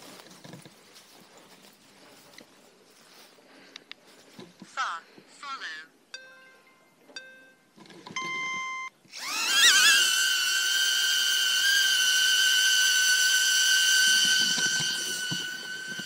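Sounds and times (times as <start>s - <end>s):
drone propellers whining: 9.1s - 16.0s.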